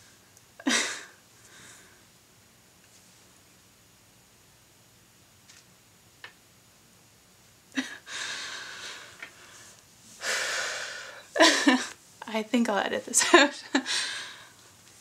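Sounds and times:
woman laughing breathily: 0:00.6 - 0:01.2, 0:07.8 - 0:09.1, 0:10.2 - 0:12.0, 0:13.2 - 0:14.5.

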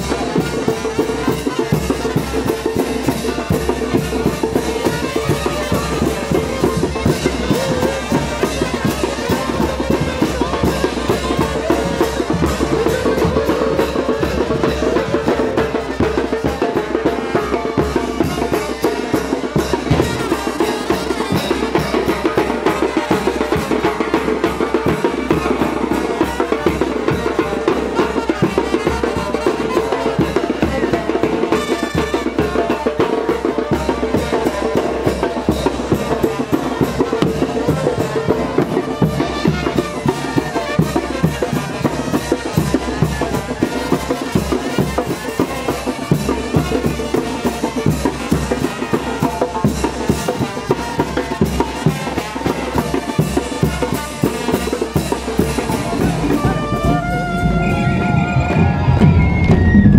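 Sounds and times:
fast drum and cymbal beat: 0:00.0 - 0:59.9
wind band playing: 0:00.0 - 0:59.9.

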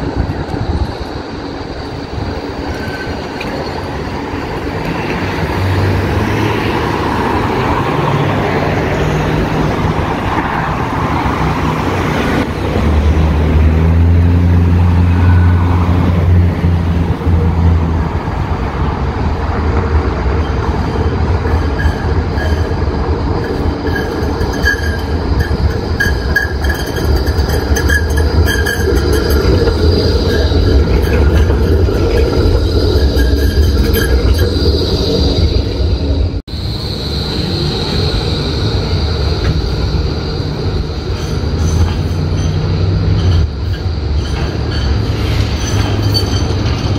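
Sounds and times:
tram motor hum: 0:00.0 - 0:46.9
wheel-on-rail noise: 0:00.0 - 0:46.9
high whine: 0:20.4 - 0:44.9.

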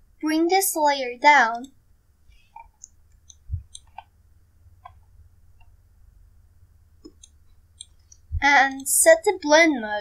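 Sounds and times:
low steady hum: 0:00.0 - 0:10.0
computer mouse clicks: 0:02.4 - 0:04.1, 0:07.0 - 0:09.0.

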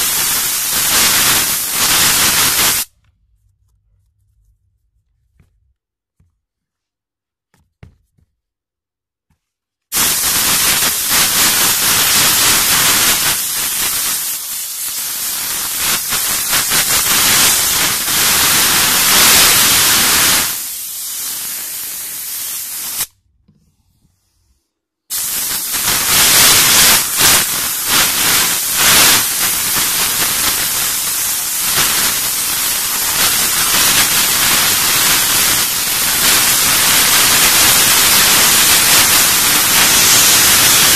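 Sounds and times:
steam cleaner hissing: 0:00.0 - 0:02.9, 0:09.9 - 0:23.2, 0:25.1 - 0:40.9.

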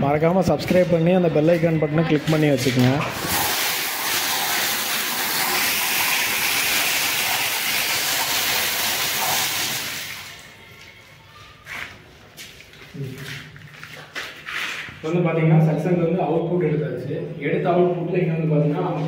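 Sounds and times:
water spray hissing: 0:03.1 - 0:10.5.

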